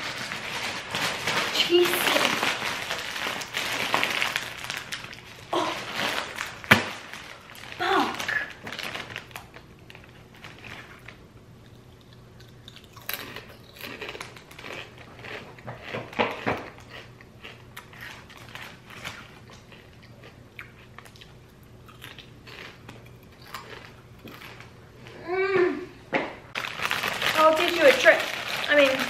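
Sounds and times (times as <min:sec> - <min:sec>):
person chewing crunchy chips: 0:00.0 - 0:25.2, 0:26.6 - 0:29.0.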